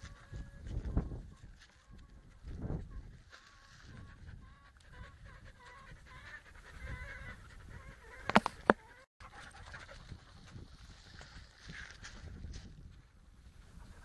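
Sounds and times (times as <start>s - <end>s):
dogs yelping: 3.8s - 10.6s.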